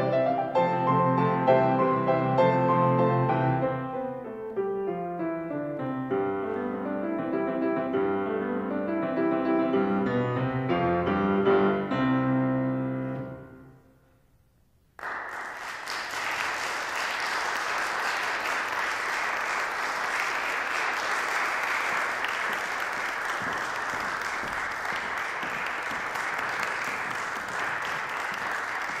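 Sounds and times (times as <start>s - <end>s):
audience applause: 15.0s - 29.0s.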